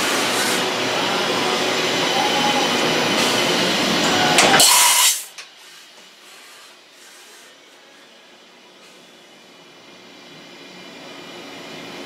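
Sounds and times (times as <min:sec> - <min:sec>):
machine milling metal: 0:00.0 - 0:05.3.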